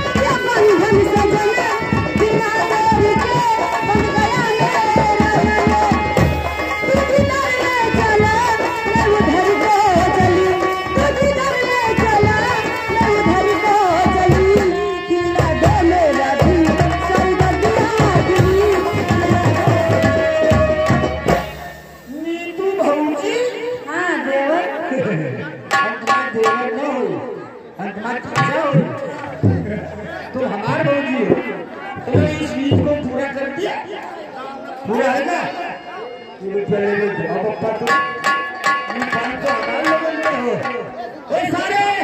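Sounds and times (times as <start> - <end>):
fast hand drum rhythm: 0.0 - 22.1.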